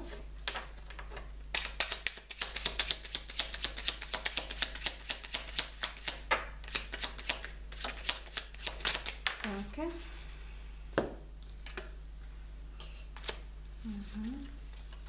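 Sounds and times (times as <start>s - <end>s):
cards being shuffled: 0.0s - 9.4s.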